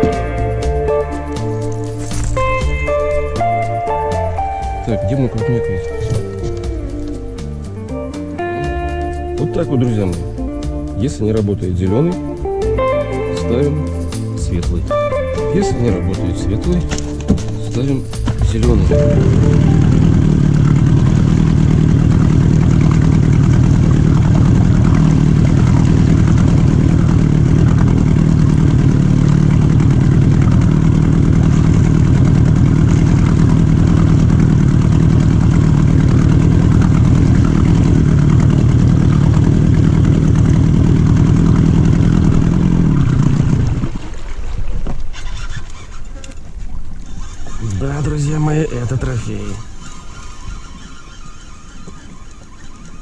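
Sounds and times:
outboard motor running: 0:00.0 - 0:53.0.

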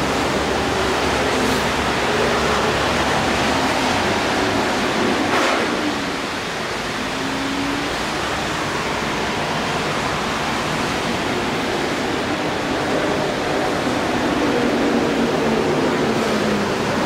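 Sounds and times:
train wheels rushing on rail: 0:00.0 - 0:17.0.

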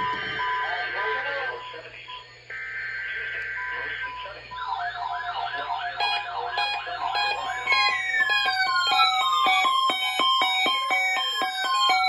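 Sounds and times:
buzzy data tones: 0:00.0 - 0:12.0
pulsed beeping: 0:00.0 - 0:12.0
warbling siren tones: 0:02.5 - 0:12.0.

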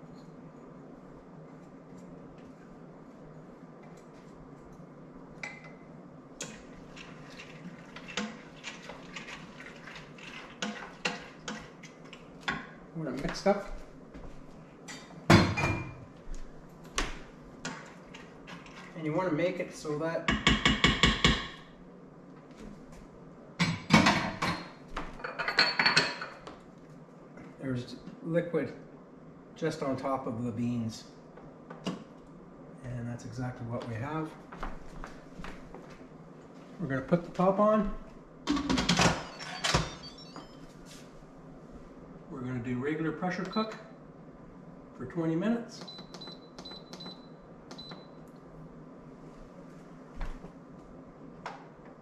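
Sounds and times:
wooden spoon knocking on metal pot: 0:20.3 - 0:21.6.

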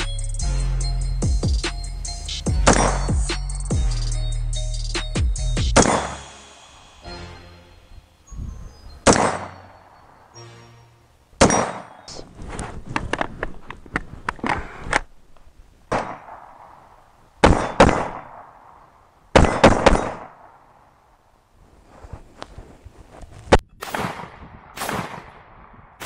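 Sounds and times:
rifle gunshots: 0:05.8 - 0:06.2, 0:09.1 - 0:09.6, 0:15.9 - 0:16.8, 0:17.4 - 0:20.6, 0:23.8 - 0:26.0.

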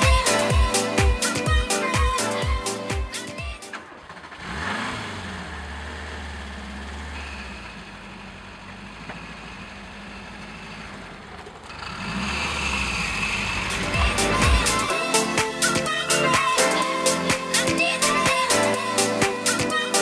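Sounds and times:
car engine revving and idling: 0:03.8 - 0:14.9.

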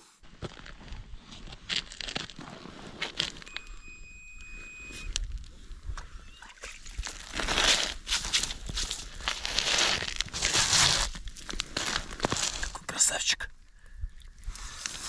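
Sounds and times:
crunching slush and ice: 0:00.2 - 0:03.8, 0:06.6 - 0:13.2, 0:14.4 - 0:15.0
fish flapping on ice: 0:06.6 - 0:12.8.

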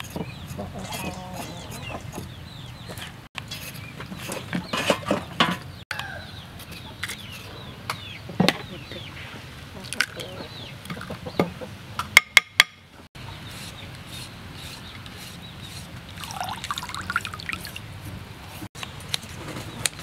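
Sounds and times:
water sloshing and trickling: 0:16.0 - 0:18.2.

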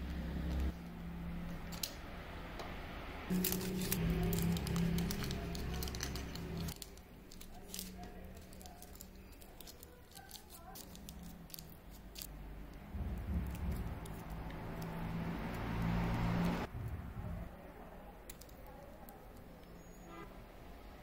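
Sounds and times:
aluminum foil crinkling: 0:03.3 - 0:12.4, 0:13.0 - 0:15.3, 0:18.2 - 0:20.0.

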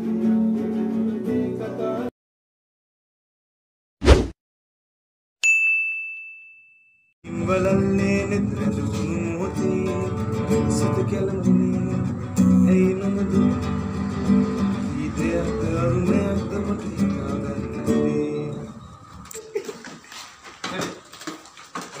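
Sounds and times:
acoustic classical guitar: 0:00.0 - 0:02.1, 0:07.3 - 0:20.0
bright bell ding: 0:05.4 - 0:07.1.

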